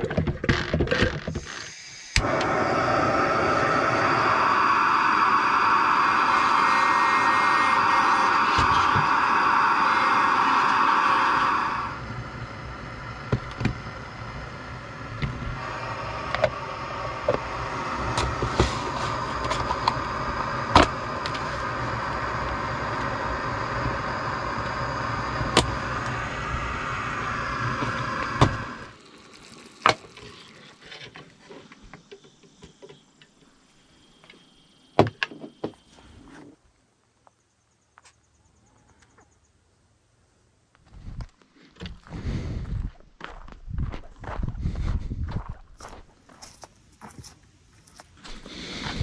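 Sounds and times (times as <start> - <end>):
gas stove hissing: 1.2 - 36.3, 47.5 - 49.0.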